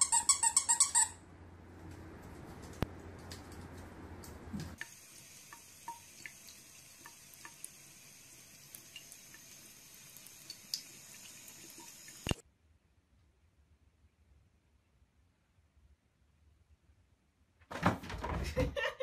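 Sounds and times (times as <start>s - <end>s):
water drips: 3.2s - 12.4s
faucet running into basin: 4.8s - 12.4s.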